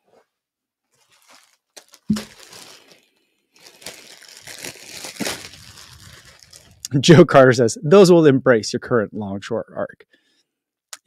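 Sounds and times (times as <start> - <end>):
plastic bag crinkling: 1.0 - 6.9.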